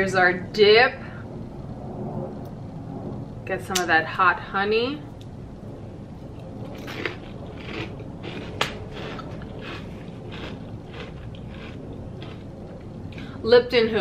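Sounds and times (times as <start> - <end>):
person chewing crunchy chip: 6.8 - 12.6.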